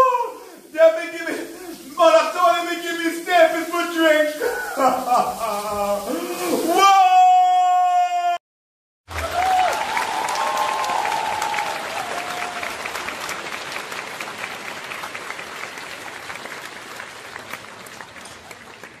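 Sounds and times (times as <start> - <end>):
crowd applause: 9.1 - 19.0.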